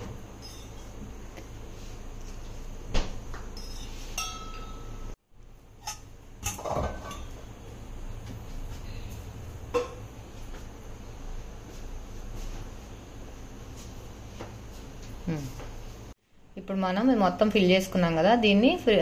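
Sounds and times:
ladle clinking on steel pot: 3.6 - 5.1.

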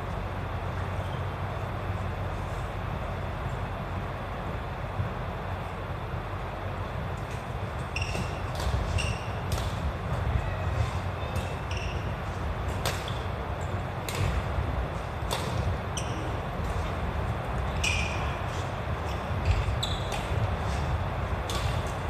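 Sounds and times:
rackets hitting shuttlecock: 7.2 - 22.0
shoes squeaking on wooden floor: 7.8 - 9.4, 10.1 - 12.4, 17.7 - 20.8.

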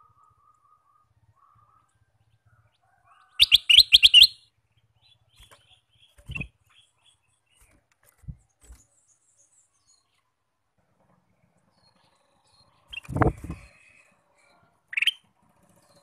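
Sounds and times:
soft bird calls: 0.0 - 10.4, 11.1 - 16.0
bird chattering notes: 3.4 - 4.4.

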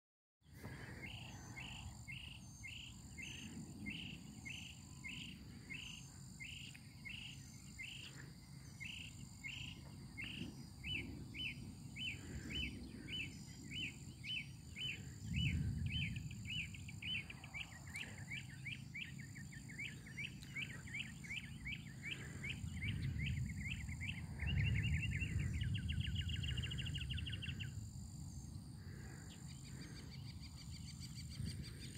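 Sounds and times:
low rumble: 9.7 - 28.7.

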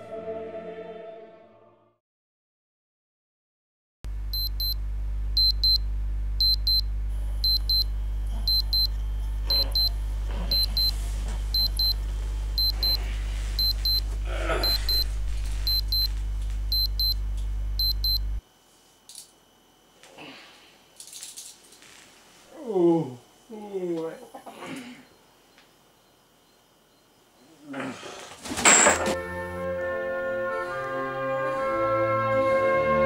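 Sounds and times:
low hum: 4.1 - 18.4
alarm clock beeping: 4.4 - 4.8, 5.4 - 5.8, 6.4 - 6.8, 7.4 - 7.9, 8.5 - 8.9, 9.5 - 12.0, 12.6 - 13.0, 13.6 - 14.0, 14.6 - 16.1, 16.7 - 17.2, 17.8 - 18.2
bedding rustling: 10.1 - 14.2.

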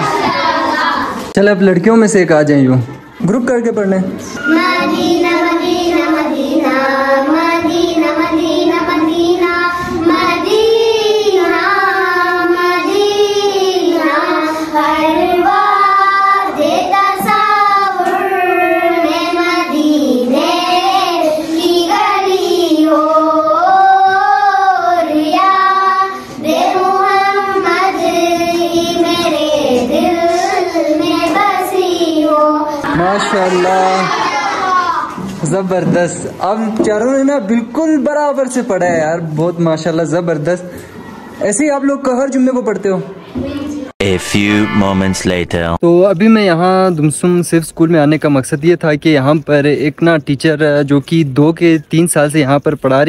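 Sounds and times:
girls singing in unison: 0.0 - 1.2, 4.4 - 32.9.

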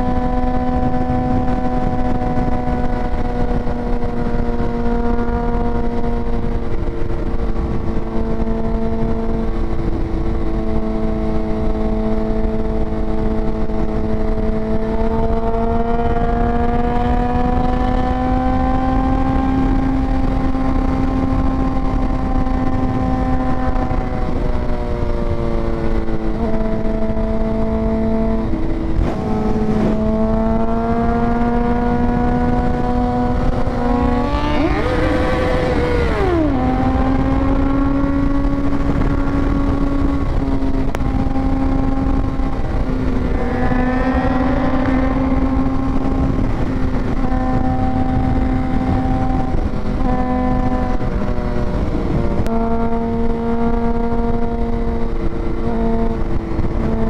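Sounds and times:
motorcycle engine cruising: 0.0 - 57.0
wind rushing on microphone: 0.0 - 57.0.

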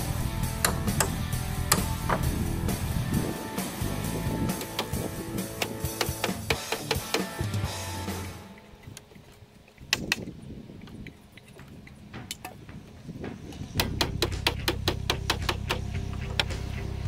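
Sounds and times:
hammer driving nails into wood: 0.6 - 2.4, 4.5 - 5.0, 5.6 - 7.4, 13.8 - 16.6.

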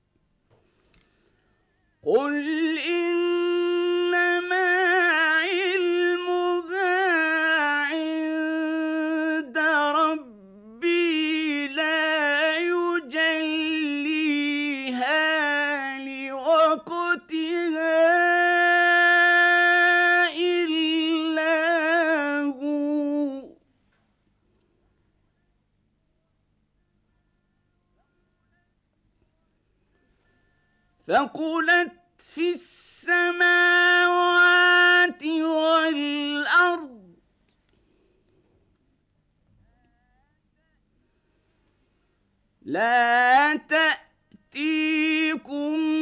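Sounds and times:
man chanting: 2.0 - 23.6, 30.6 - 37.2, 42.6 - 46.0.

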